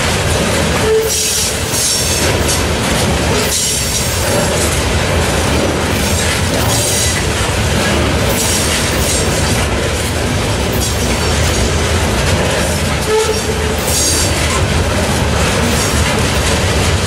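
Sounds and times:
train wheels rumbling on rail: 0.0 - 17.0
wheels squealing: 0.7 - 17.0.

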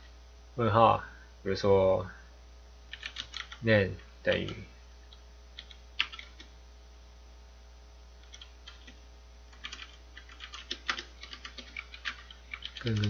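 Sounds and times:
faint low hum: 0.0 - 13.0
computer keyboard typing: 2.9 - 3.6, 5.6 - 6.5, 8.2 - 13.0.

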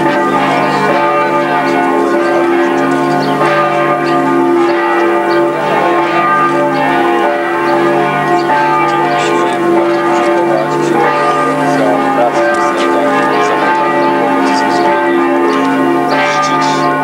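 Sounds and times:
church bells ringing: 0.0 - 17.0.

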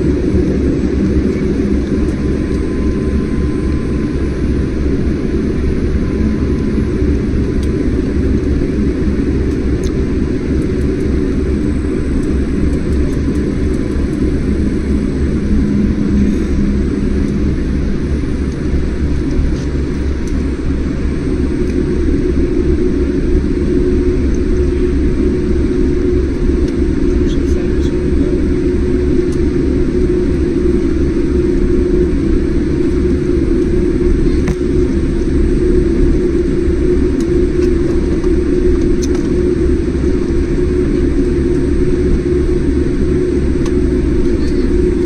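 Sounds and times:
jet engines rumbling: 0.0 - 45.0.

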